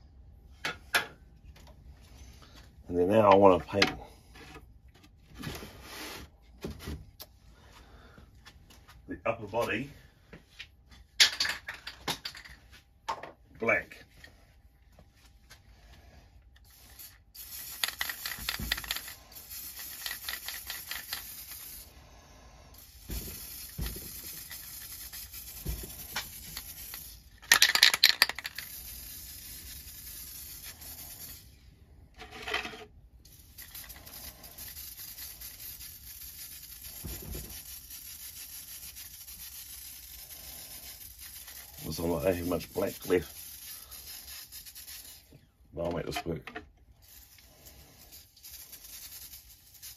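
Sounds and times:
spray can rattling burst: 16.6 - 22.0, 22.7 - 31.5, 33.2 - 45.3, 47.0 - 49.9
spray can hissing: 16.6 - 31.5, 33.3 - 45.4, 47.0 - 49.9.

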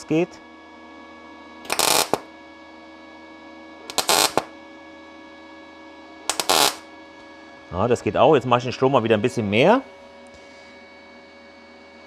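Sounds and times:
welder arc noise: 1.6 - 2.3, 3.8 - 4.5, 6.3 - 6.9.

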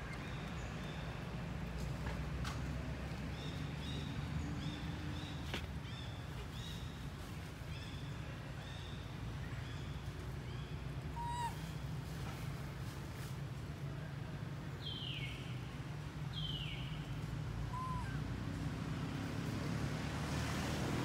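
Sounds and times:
baby monkey crying: 11.2 - 11.6, 17.7 - 18.2.

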